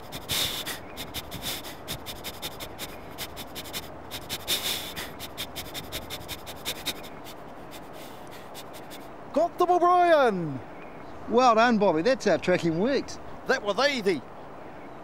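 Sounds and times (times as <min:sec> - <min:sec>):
dog sniffing: 0:00.0 - 0:09.1.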